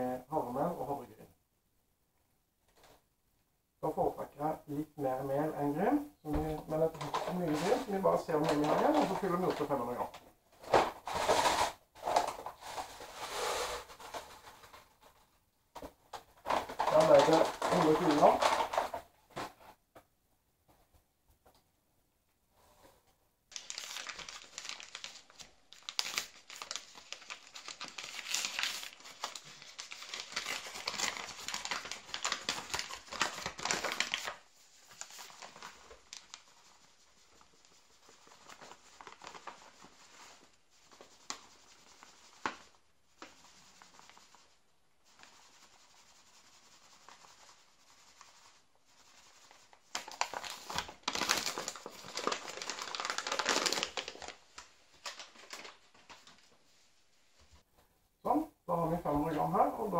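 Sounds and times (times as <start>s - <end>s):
paper bag crinkling: 6.5s - 15.2s, 16.4s - 19.1s, 23.5s - 44.5s, 45.1s - 56.8s.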